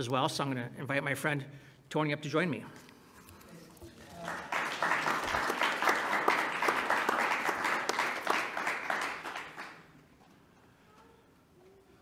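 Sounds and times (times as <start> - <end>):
congregation applauding: 4.0 - 10.0.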